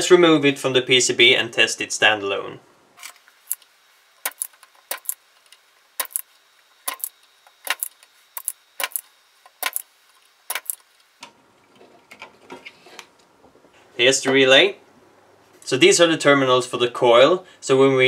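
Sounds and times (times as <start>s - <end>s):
desoldering pump snapping: 4.2s - 6.2s, 10.5s - 11.3s.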